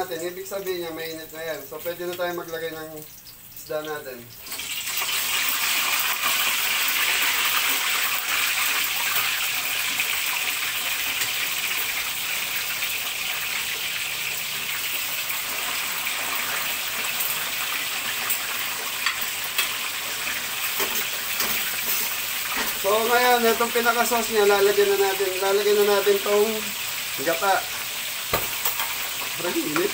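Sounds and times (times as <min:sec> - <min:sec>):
fish frying in hot oil: 0:00.0 - 0:29.9
sharp oil crackles: 0:01.7 - 0:22.9.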